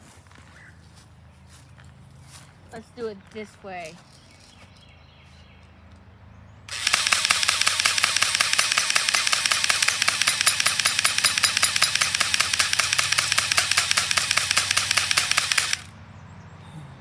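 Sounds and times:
airsoft gun firing full auto: 0:06.7 - 0:15.9.

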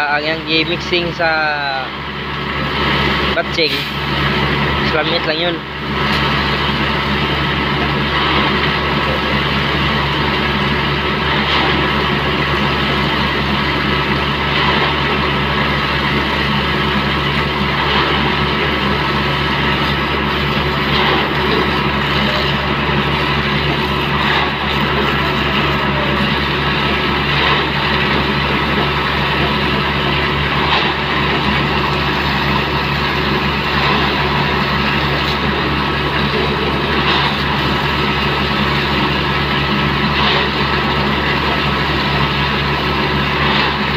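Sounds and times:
diesel engine running: 0:00.0 - 0:43.9.

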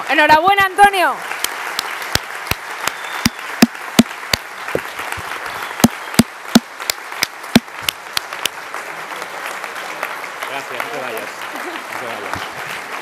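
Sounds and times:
crowd applauding: 0:00.0 - 0:13.0
loud sharp single claps: 0:01.4 - 0:08.6.

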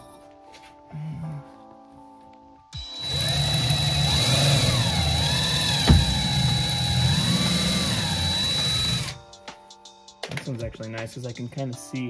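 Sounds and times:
cordless drill driving a screw: 0:02.8 - 0:09.2
knock: 0:05.9 - 0:06.5.

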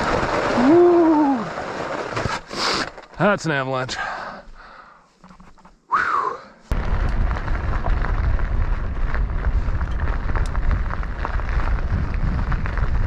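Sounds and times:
bike tyres clicking over ice: 0:00.0 - 0:03.3, 0:06.7 - 0:13.0
wind rumble on microphone: 0:06.7 - 0:13.0.

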